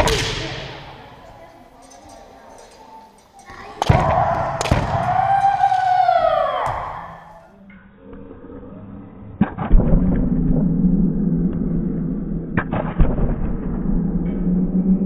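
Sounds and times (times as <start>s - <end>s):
bamboo swords striking: 0.0s - 1.1s, 3.8s - 5.2s
steady low drone: 3.8s - 15.0s.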